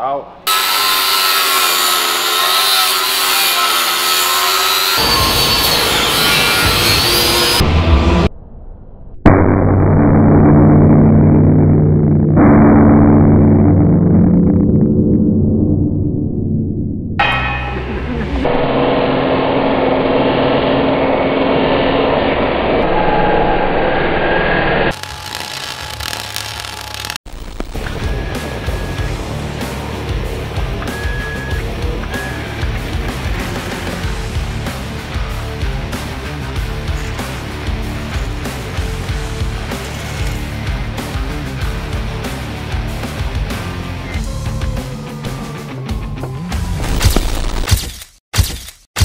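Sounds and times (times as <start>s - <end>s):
angle grinder cutting steel: 0.5s - 7.6s, 24.9s - 27.2s
low rumble: 7.6s - 24.4s.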